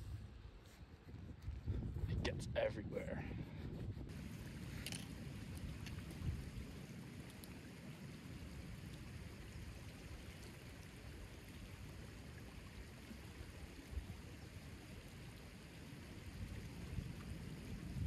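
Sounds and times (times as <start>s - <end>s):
rushing water: 4.1s - 18.0s.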